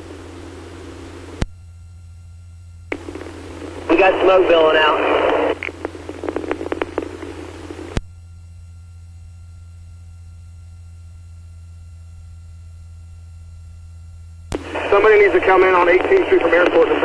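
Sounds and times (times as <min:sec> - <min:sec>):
low hum with faint tones: 0:00.0 - 0:17.0
radio hiss: 0:02.9 - 0:08.0, 0:14.5 - 0:17.0.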